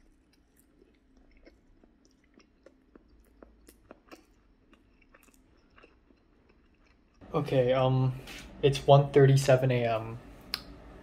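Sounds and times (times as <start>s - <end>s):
person chewing food: 0.0s - 7.2s
low room hum: 0.0s - 11.0s.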